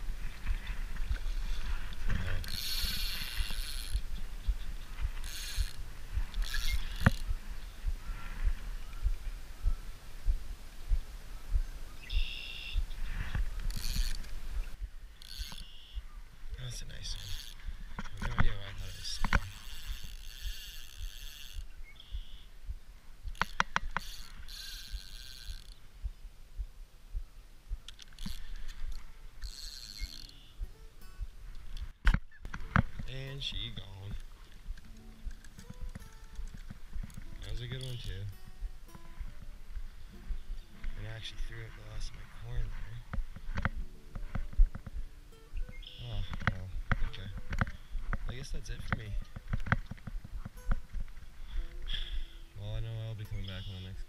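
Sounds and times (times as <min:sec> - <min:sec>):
low thuds: 0:00.0 - 0:16.1, 0:17.1 - 0:29.5, 0:30.6 - 0:52.4
fishing reel drag buzzing: 0:00.1 - 0:09.1, 0:12.0 - 0:16.0, 0:16.7 - 0:22.5, 0:23.2 - 0:25.9, 0:27.9 - 0:30.6, 0:51.3 - 0:52.5.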